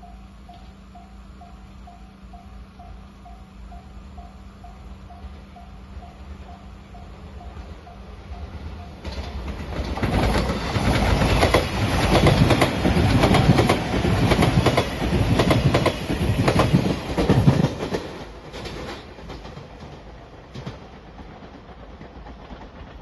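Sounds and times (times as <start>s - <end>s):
faint level crossing bell: 0.0s - 9.4s
electric train passing at speed: 0.0s - 23.0s
wheels clattering over rail joints: 8.4s - 23.0s.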